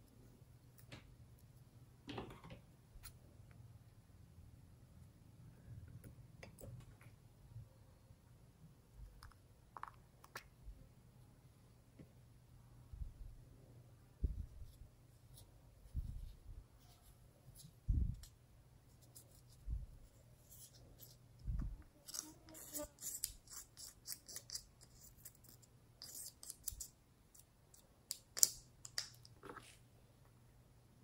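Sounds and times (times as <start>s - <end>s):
dull low thumps: 14.2s - 14.6s.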